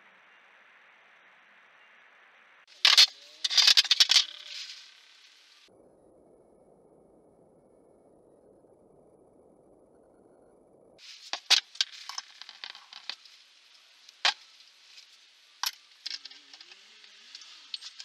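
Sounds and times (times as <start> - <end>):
light hiss: 2.7 - 5.7, 11.0 - 18.0
metallic clicks and clinks: 2.8 - 4.9, 14.2 - 18.0.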